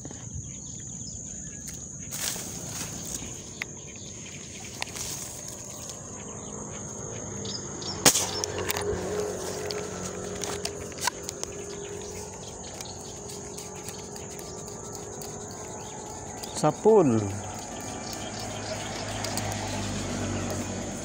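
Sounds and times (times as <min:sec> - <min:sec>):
high-pitched insect drone: 0:00.0 - 0:21.0
handling rustles: 0:01.7 - 0:06.0
sharp clicks: 0:08.0 - 0:15.6, 0:16.4 - 0:20.7.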